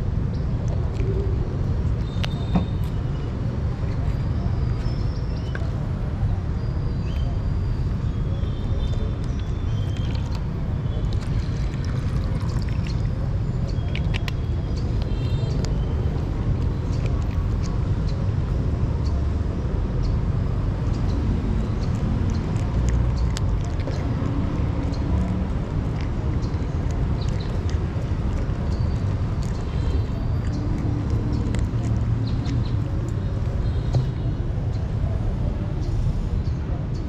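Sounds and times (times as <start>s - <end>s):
cat crunching dry kibble: 7.8s - 18.5s, 21.2s - 34.2s.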